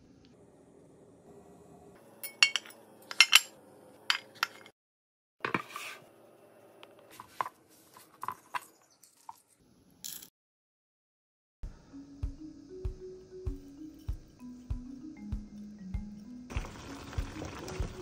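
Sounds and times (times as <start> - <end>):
dishes and fork clinking: 2.2 - 4.7.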